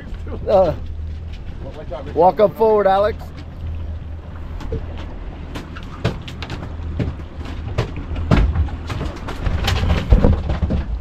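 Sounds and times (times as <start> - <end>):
boat engine low rumble: 0.0 - 11.0
knocks and bumps on deck: 6.0 - 11.0.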